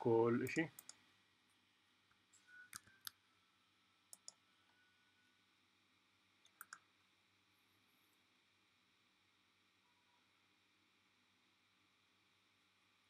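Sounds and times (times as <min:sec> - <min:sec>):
computer mouse clicks: 0:00.4 - 0:01.0, 0:04.1 - 0:04.4, 0:06.4 - 0:06.9.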